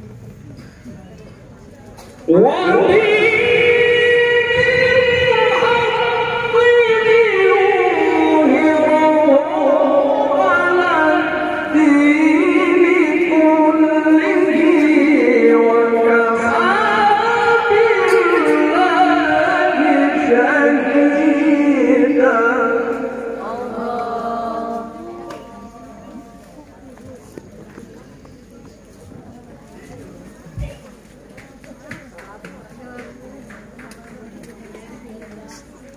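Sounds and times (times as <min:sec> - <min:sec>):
man reciting melodically: 0:02.3 - 0:26.4.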